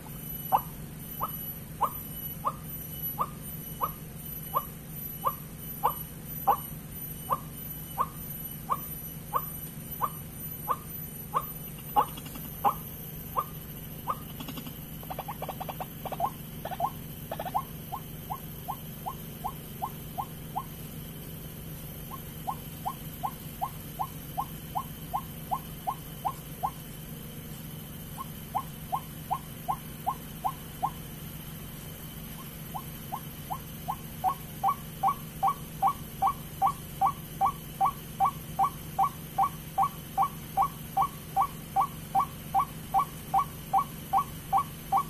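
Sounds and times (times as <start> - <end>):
steady low hum: 0.0 - 45.0
bird calling sharp notes: 0.4 - 20.7, 32.4 - 45.0.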